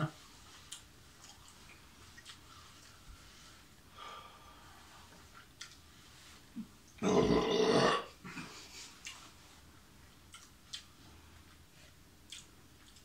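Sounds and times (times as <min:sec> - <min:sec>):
man making guttural throat sound: 0:07.0 - 0:08.4.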